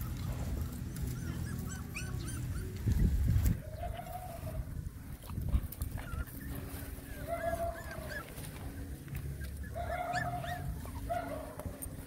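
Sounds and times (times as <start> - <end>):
puppies whining and squeaking: 0.0 - 12.0.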